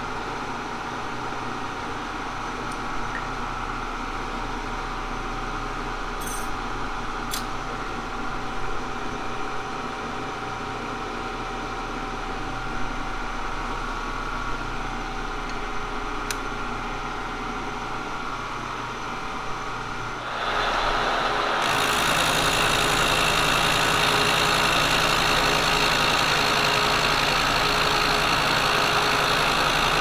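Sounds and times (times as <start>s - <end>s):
machine humming with faint whine: 0.0s - 28.2s
metallic clinks of tools: 6.2s - 6.6s.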